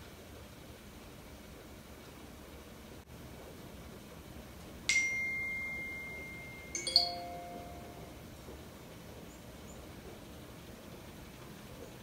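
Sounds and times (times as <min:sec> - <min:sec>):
bell-like chime tones: 0:04.9 - 0:08.2.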